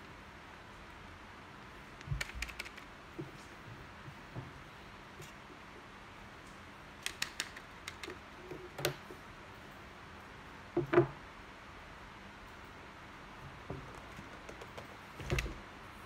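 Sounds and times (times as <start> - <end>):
knocks on wooden table: 10.8 - 11.2.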